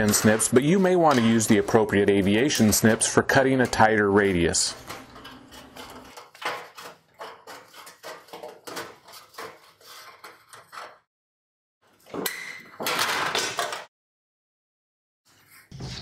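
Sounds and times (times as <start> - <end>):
metal sheet rattling: 0.0 - 10.9.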